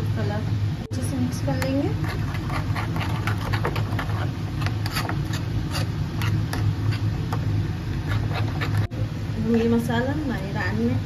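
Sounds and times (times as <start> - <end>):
low hum: 0.0 - 11.0
spoon scraping a bowl: 1.9 - 7.2, 7.9 - 8.9.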